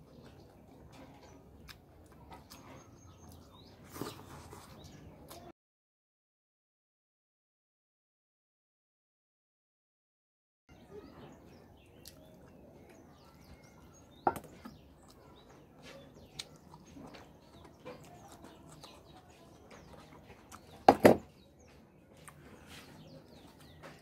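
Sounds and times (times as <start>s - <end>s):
chewing: 0.0s - 5.5s, 11.8s - 20.9s, 21.7s - 24.0s
faint birds chirping: 0.0s - 5.5s, 10.7s - 24.0s.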